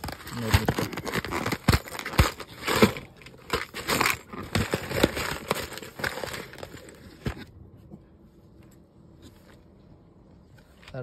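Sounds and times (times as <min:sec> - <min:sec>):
paper envelope crinkling: 0:00.0 - 0:07.4.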